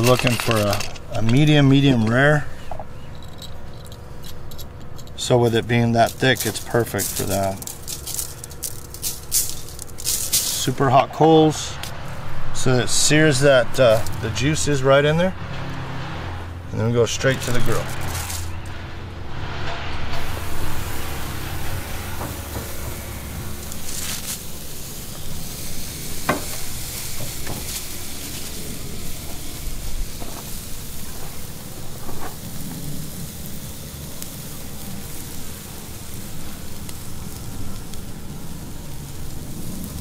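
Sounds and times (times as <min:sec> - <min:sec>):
steaks sizzling on a grill: 0:00.0 - 0:01.9, 0:05.2 - 0:10.8, 0:12.8 - 0:14.8, 0:20.2 - 0:40.0
sharp crackles: 0:03.2 - 0:10.9, 0:13.8 - 0:14.5, 0:17.2 - 0:18.8, 0:20.1 - 0:40.0.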